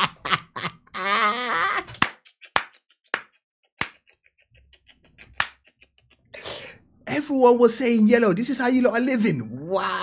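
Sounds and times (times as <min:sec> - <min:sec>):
drawn-out wavering voice: 0:01.0 - 0:01.9.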